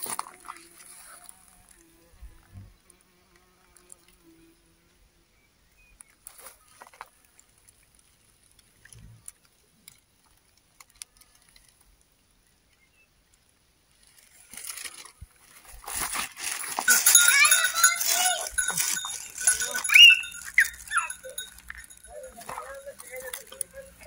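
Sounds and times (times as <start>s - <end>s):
grass rustling against phone: 13.9s - 24.0s
animal calling: 16.9s - 24.0s.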